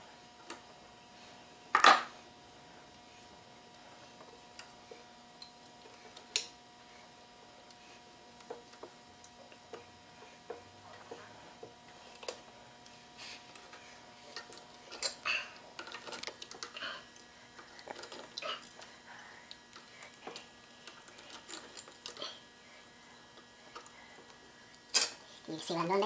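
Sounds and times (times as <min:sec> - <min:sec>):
metal wire clicks and scrapes: 0:12.1 - 0:18.9, 0:19.5 - 0:22.4.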